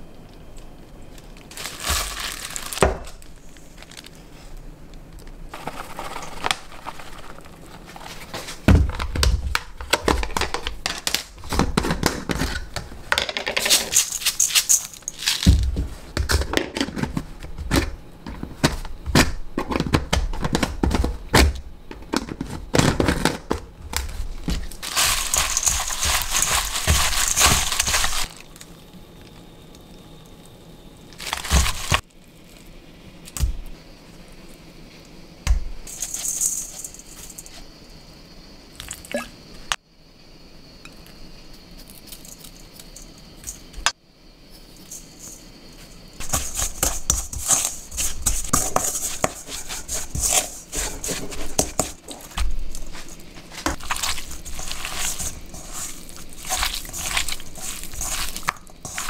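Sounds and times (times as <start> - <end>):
plastic bag crinkling: 1.2 - 4.6, 5.5 - 8.6, 24.5 - 28.7, 31.1 - 32.6, 49.6 - 59.0.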